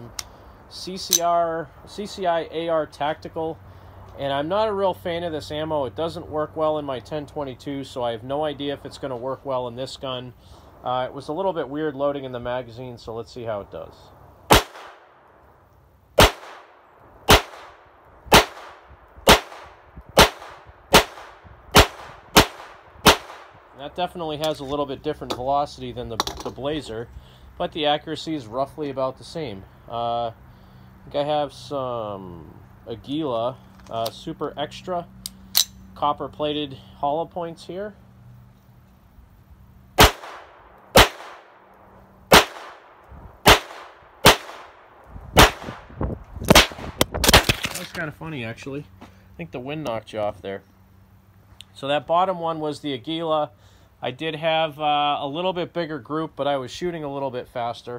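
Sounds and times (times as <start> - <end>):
pistol shots: 14.5 - 15.1, 16.2 - 23.6, 40.0 - 41.6, 42.3 - 45.9, 46.5 - 47.8.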